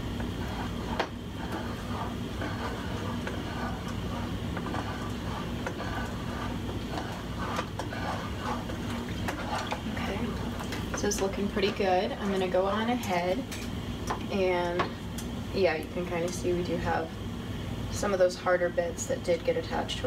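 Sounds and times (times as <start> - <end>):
wooden spoon scraping saucepan: 0.0 - 13.2
steady low hum: 0.0 - 20.0.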